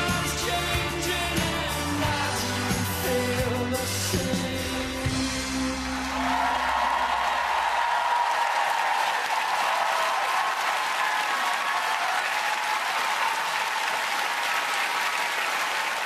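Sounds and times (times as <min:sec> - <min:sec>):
band playing low notes: 0:00.0 - 0:07.0
audience applauding: 0:05.5 - 0:16.0.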